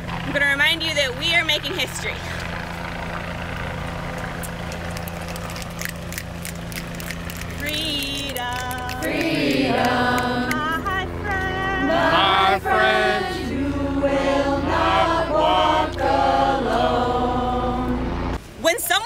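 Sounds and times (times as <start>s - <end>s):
low steady rumble: 0.0s - 19.0s
voices singing a chant-like melody: 8.7s - 18.3s.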